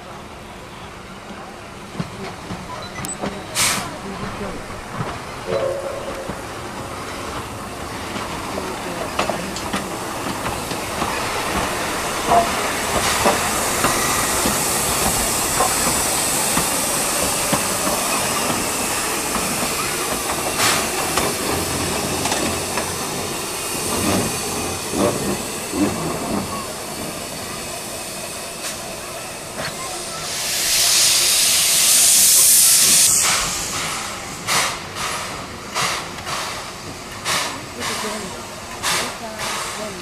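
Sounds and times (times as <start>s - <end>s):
steam engine moving slowly: 1.0s - 40.0s
hiss of escaping steam: 11.1s - 40.0s.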